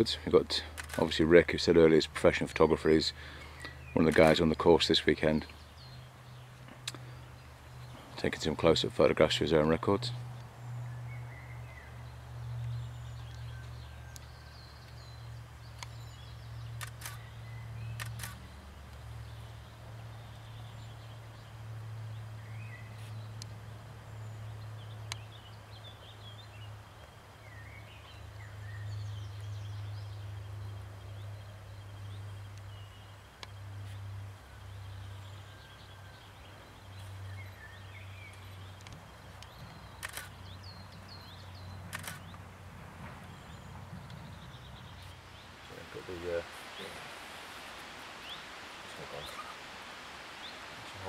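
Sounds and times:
small birds chirping: 0.0 - 51.0
camera shutter clicking: 16.8 - 17.2, 18.0 - 18.4, 40.0 - 40.4, 41.9 - 42.3.

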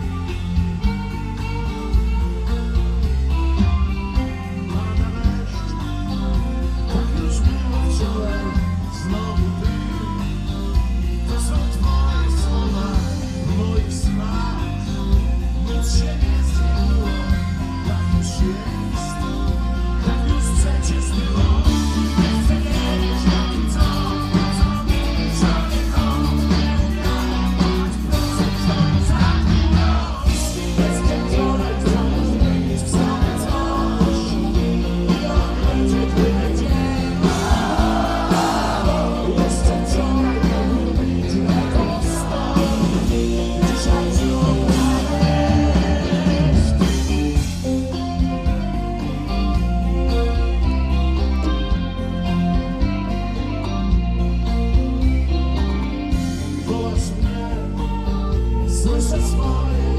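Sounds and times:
live rock band playing: 0.0 - 59.9
man singing: 4.2 - 47.7, 56.4 - 59.9.

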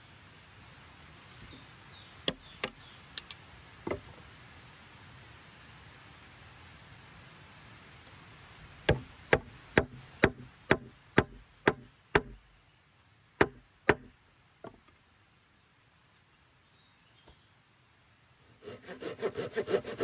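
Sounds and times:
wooden wedge being hammered: 2.3 - 4.0, 8.9 - 12.5, 13.4 - 14.8.

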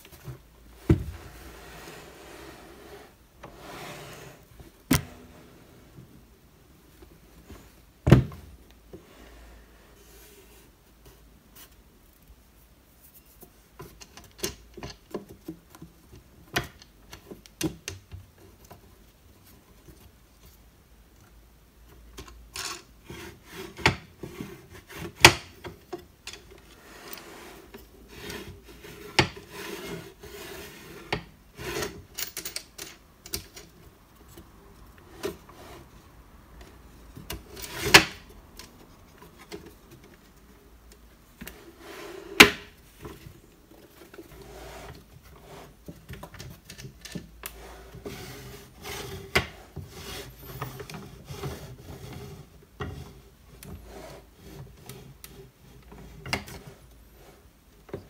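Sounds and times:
wooden parts sliding and rubbing: 0.0 - 12.1, 21.4 - 58.0.

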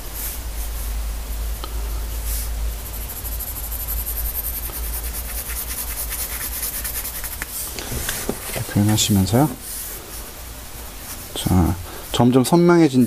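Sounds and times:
low steady hum: 0.0 - 13.0
pencil scratching on paper: 3.2 - 7.5.

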